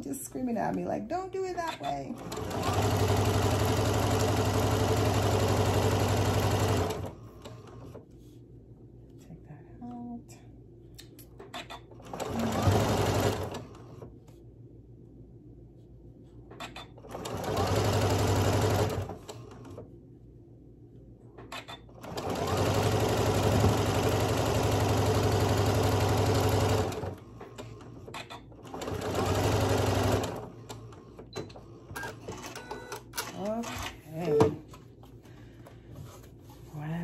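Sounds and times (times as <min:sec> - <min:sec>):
sewing machine stitching: 0:01.8 - 0:08.0, 0:11.6 - 0:14.1, 0:16.6 - 0:19.8, 0:21.5 - 0:33.7.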